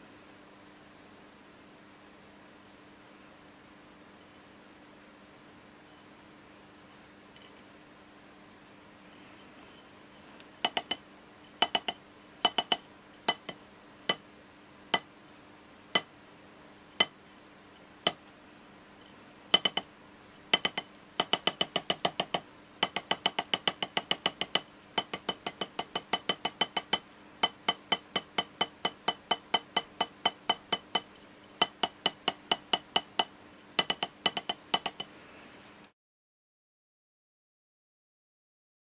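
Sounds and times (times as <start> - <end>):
drumstick striking practice pad: 10.6 - 11.0, 11.6 - 14.2, 14.9 - 15.1, 15.9 - 16.1, 17.0 - 17.2, 18.0 - 18.2, 19.5 - 19.9, 20.5 - 35.1.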